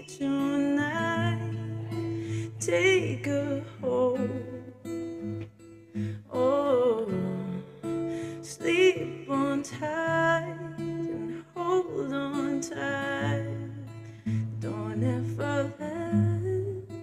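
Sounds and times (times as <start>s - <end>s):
person singing: 0.0s - 4.9s, 6.1s - 17.0s
strummed acoustic guitar: 0.0s - 17.0s.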